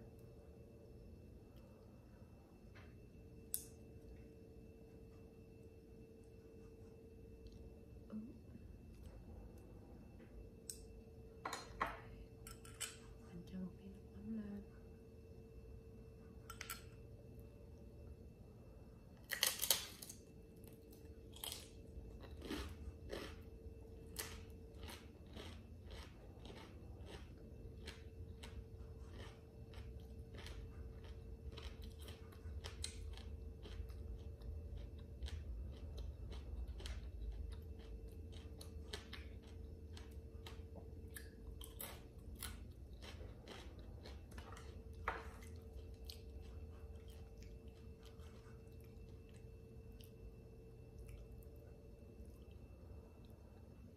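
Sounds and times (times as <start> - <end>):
faint steady hum: 0.0 - 53.9
crunchy chewing: 19.2 - 53.9.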